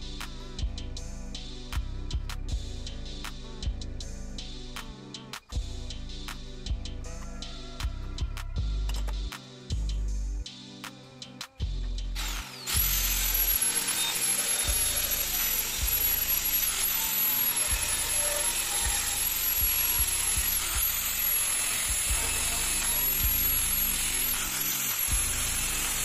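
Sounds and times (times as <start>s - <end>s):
angle grinder cutting steel: 12.2s - 26.0s.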